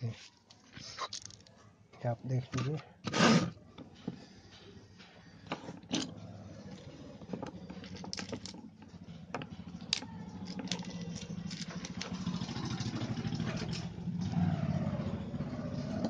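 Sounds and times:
plastic and metal parts clicking: 6.8s - 12.2s.

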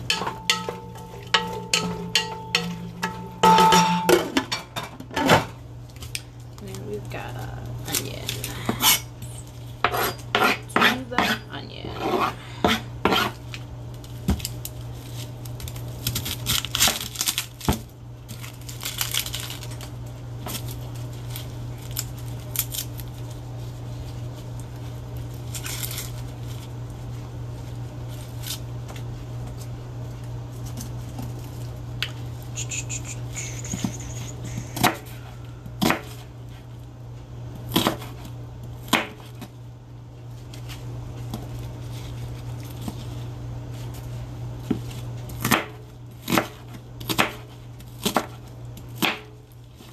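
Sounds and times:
low hum: 0.0s - 5.0s
onion skin rustling: 12.1s - 49.9s.

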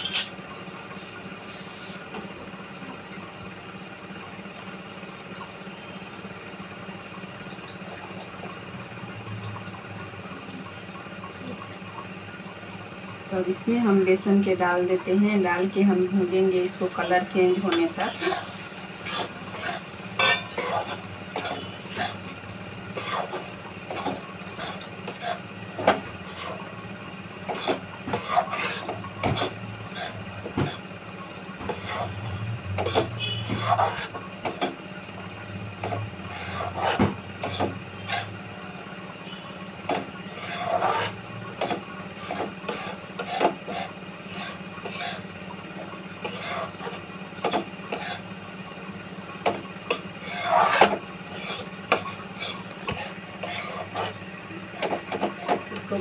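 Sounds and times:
metal spatula scraping a pan: 16.9s - 22.3s, 22.9s - 25.5s, 26.2s - 26.7s, 27.5s - 30.9s, 31.6s - 34.1s, 36.2s - 38.4s, 40.3s - 45.3s, 46.2s - 48.3s, 49.9s - 56.0s.

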